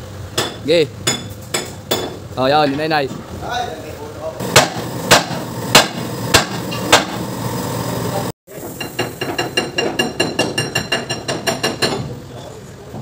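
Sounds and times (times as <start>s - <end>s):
hammer striking steel: 4.4s - 7.2s.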